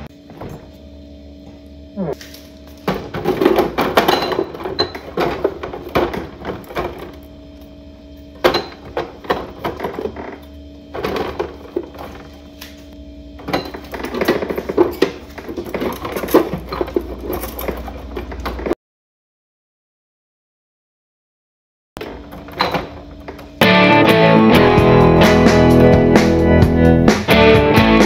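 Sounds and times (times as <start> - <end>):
bottles clinking: 2.9 - 6.2.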